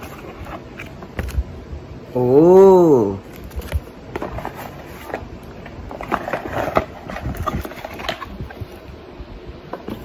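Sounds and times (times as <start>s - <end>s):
cardboard box being opened: 3.3s - 8.6s.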